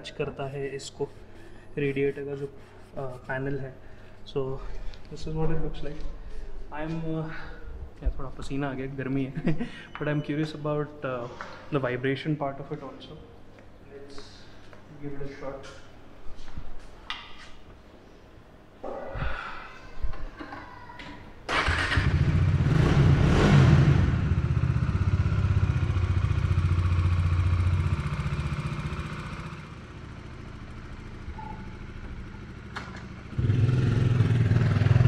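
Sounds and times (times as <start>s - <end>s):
motorcycle engine starting and revving: 21.5s - 35.0s.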